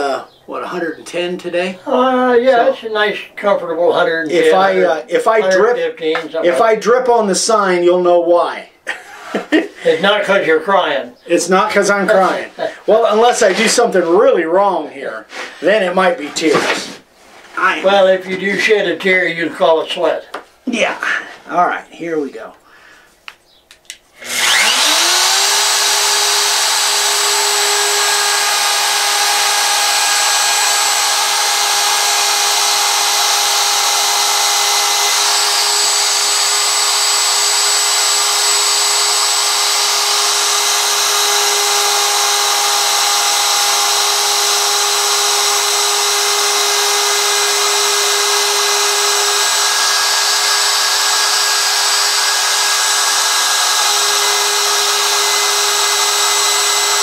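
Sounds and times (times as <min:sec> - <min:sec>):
router whining cutting wood: 0:04.3 - 0:06.7, 0:24.2 - 0:57.0.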